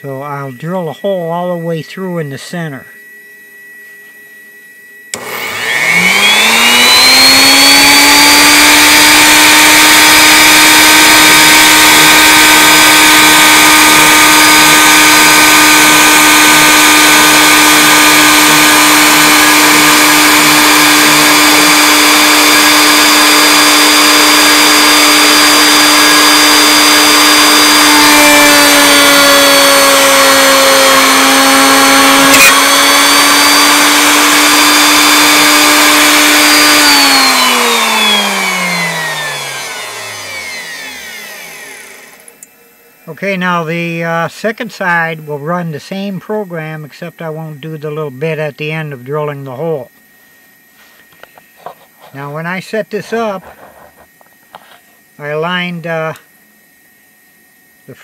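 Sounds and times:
router motor whine: 2.9s - 44.0s.

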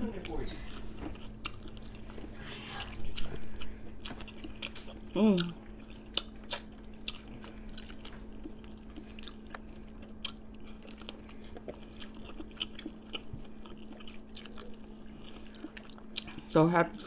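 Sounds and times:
faint steady hum: 0.0s - 17.0s
chewing with wet mouth clicks: 0.1s - 16.5s.

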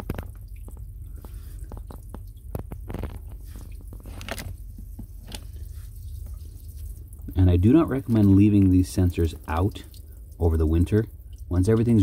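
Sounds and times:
low steady rumble: 0.0s - 12.0s
water trickling and splashing: 0.0s - 12.0s.

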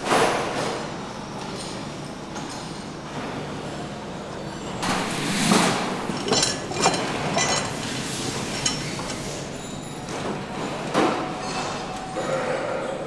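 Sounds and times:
factory hall hum: 0.0s - 13.0s
metal clanks and scrapes: 4.8s - 10.0s.

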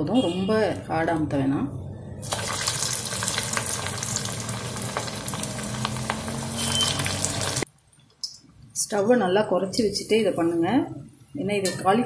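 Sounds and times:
deep-frying sizzle with pops: 2.2s - 8.4s.

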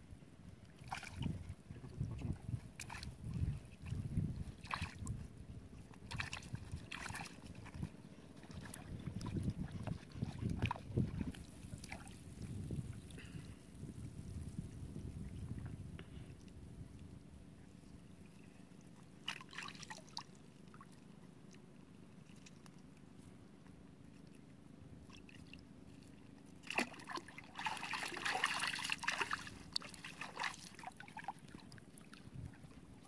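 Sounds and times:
water splashing and trickling: 0.7s - 15.7s, 18.2s - 21.6s, 25.0s - 33.0s.

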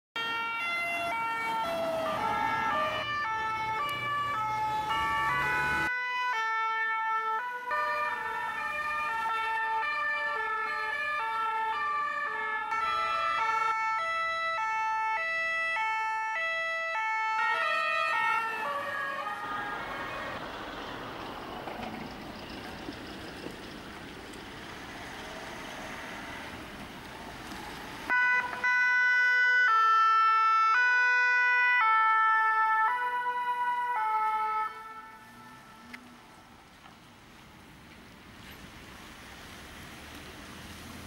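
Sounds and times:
two-tone emergency sirens: 0.2s - 20.5s, 28.1s - 36.7s.

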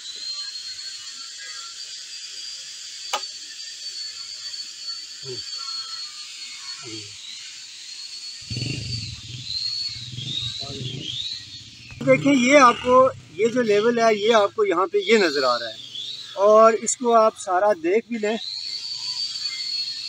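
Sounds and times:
high-pitched hum: 8.4s - 20.0s.

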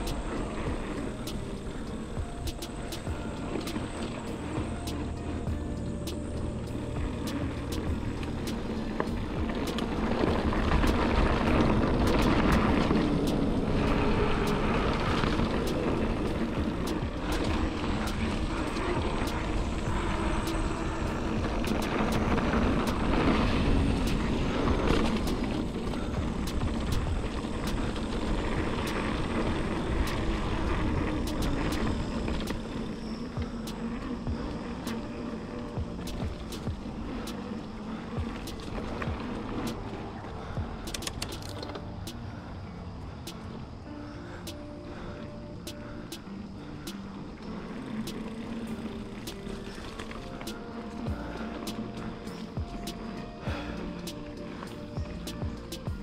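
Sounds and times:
tyre noise on dirt: 0.0s - 42.4s
bike clicks and rattles: 0.0s - 56.0s
wind rumble on microphone: 0.0s - 56.0s.

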